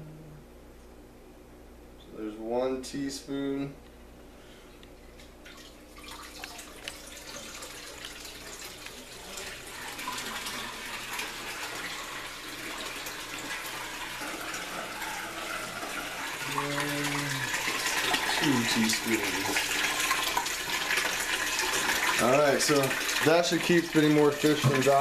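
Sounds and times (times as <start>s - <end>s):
water splashing into tub: 5.4s - 25.0s.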